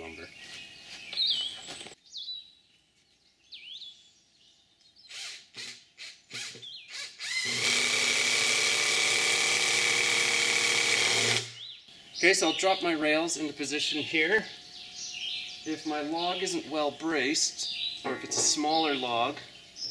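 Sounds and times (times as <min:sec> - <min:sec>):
birds chirping: 0:00.0 - 0:07.4, 0:11.3 - 0:19.9
cordless drill driving a screw: 0:05.1 - 0:11.6.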